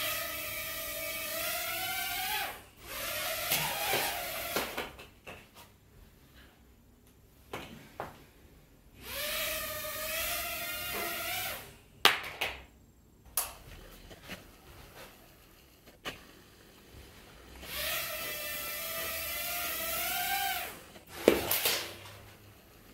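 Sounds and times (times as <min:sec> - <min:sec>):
quadcopter motors whining: 0:00.0 - 0:04.6, 0:09.0 - 0:11.7, 0:17.6 - 0:21.7.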